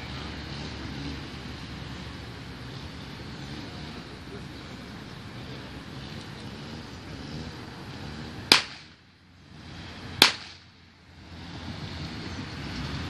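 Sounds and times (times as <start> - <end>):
gunshots: 8.5 - 8.9, 10.2 - 10.6.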